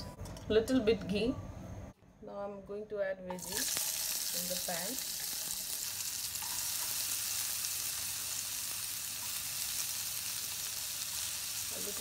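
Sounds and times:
vegetables sizzling in a pan: 0:03.3 - 0:12.0.

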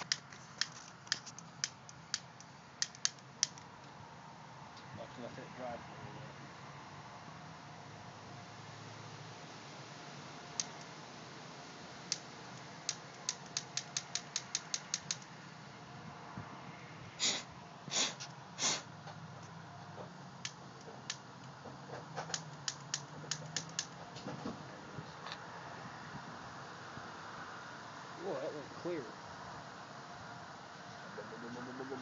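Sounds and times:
sharp mechanical clicks: 0:00.0 - 0:03.7, 0:12.1 - 0:15.3, 0:22.2 - 0:24.0.

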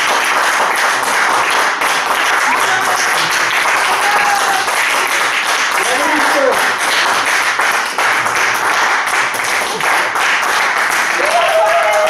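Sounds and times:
group clapping: 0:00.0 - 0:12.0.

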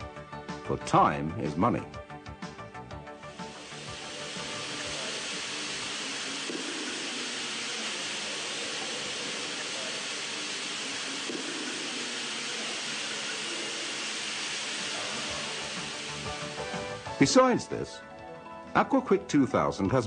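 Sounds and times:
floor scrubber hissing: 0:03.1 - 0:17.7.

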